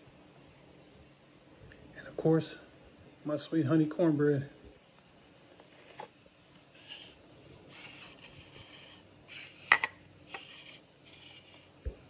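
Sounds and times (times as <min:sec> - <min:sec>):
plate scraping on stone countertop: 0:05.6 - 0:11.8.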